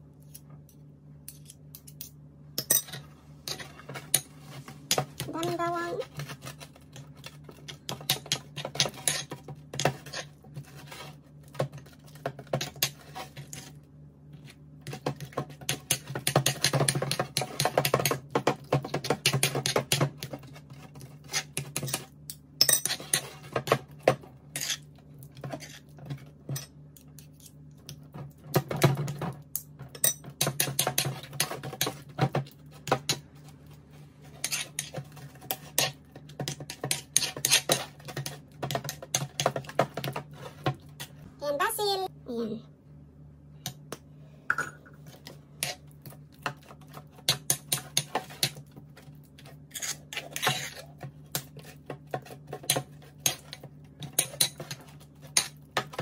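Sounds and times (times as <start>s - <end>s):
metal spoon scraping ceramic bowl: 34.4s - 35.9s, 49.7s - 50.9s.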